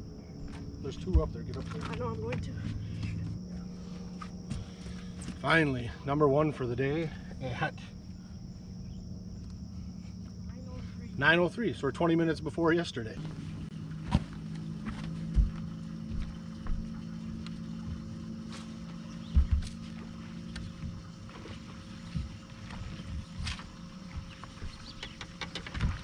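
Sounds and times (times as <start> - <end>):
electric boat motor humming: 0.0 - 26.0
heavy thumps on boat deck: 19.2 - 21.1.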